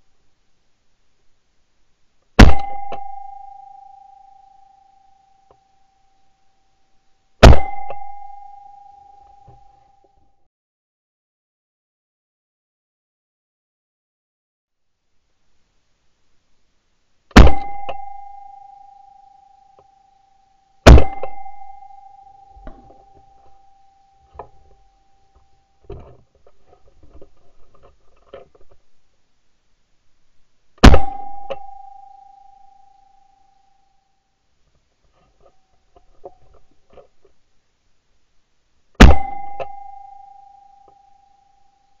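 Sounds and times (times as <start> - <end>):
shotgun shots: 2.4 - 2.8, 7.4 - 7.8, 17.4 - 17.8, 20.9 - 21.4, 30.8 - 31.2, 39.0 - 39.4
steady ringing tone: 2.4 - 6.8, 7.4 - 10.2, 17.4 - 25.8, 30.8 - 34.3, 39.0 - 42.0.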